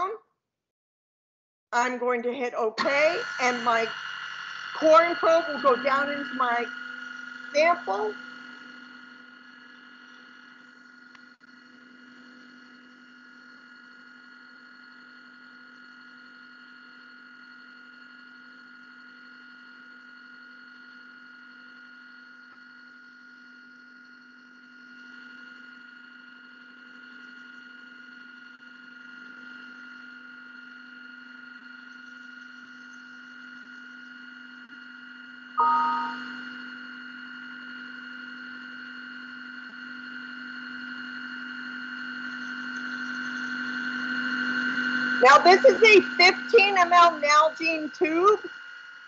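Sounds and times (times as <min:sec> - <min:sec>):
machine spindle humming: 0:02.8 - 0:14.5, 0:42.3 - 0:48.7.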